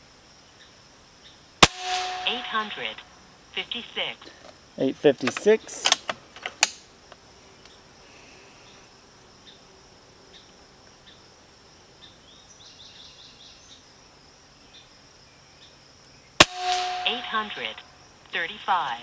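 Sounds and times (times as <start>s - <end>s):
high-pitched insect drone: 1.9s - 4.2s.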